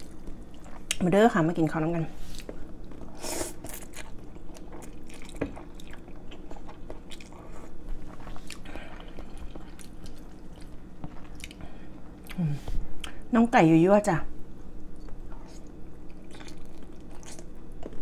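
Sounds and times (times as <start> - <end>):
person chewing: 2.4 - 12.4, 15.0 - 18.0.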